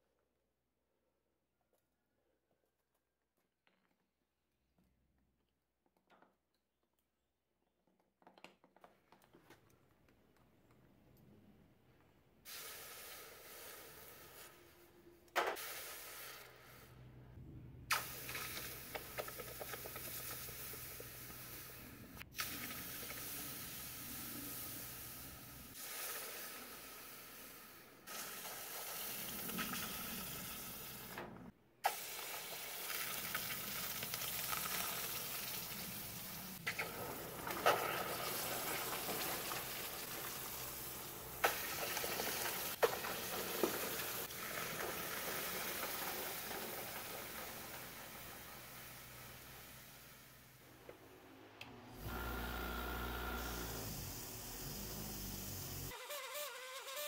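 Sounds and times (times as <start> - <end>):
hot metal sizzling in water: 17.9 - 31.1, 31.8 - 50.6.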